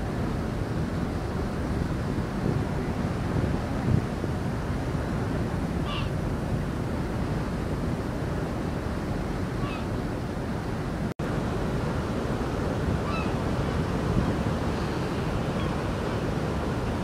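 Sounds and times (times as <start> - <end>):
sea water rushing: 0.0 - 17.0
wind: 0.0 - 17.0
gull calling: 5.8 - 6.1, 9.6 - 9.9, 13.0 - 13.4.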